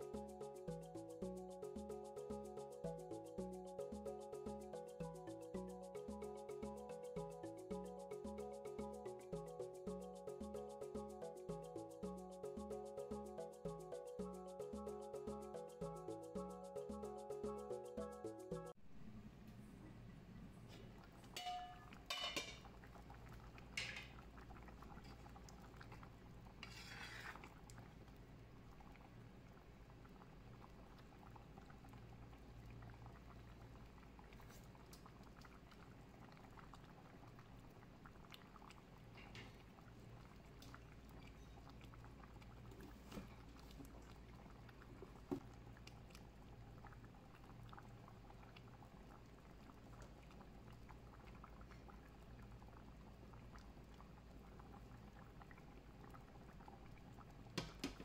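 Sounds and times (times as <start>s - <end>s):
curry simmering softly: 19.0s - 58.0s
metal lid clinking on pot: 21.4s - 22.7s.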